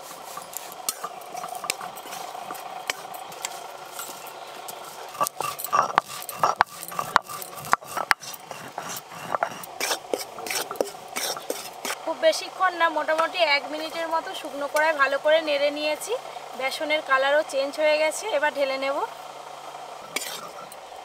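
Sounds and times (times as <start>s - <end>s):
spatula stirring flour in wok: 0.0s - 12.1s
stone roller grinding spices: 0.0s - 19.0s, 20.0s - 20.9s.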